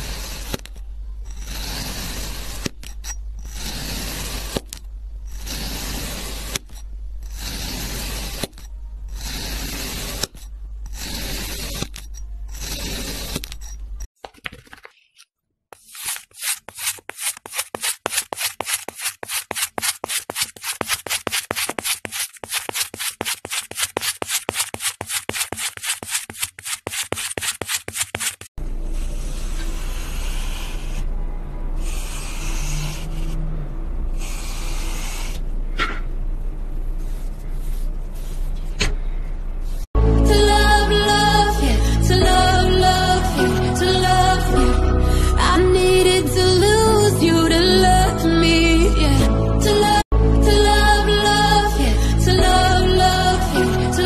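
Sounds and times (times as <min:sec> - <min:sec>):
wire tool rasping on sand: 0:00.0 - 0:14.1, 0:15.8 - 0:31.1, 0:31.8 - 0:33.4, 0:34.2 - 0:35.5.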